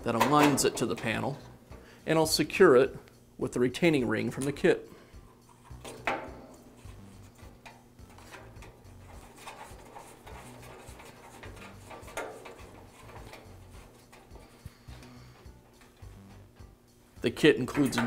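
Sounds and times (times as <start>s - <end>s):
light metal clicks and scrapes: 5.3s - 16.7s.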